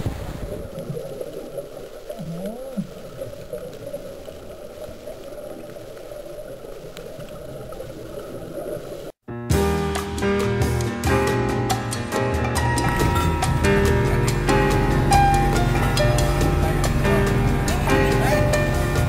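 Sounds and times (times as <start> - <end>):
muffled underwater rushing water: 0.0 - 9.2, 12.9 - 19.0.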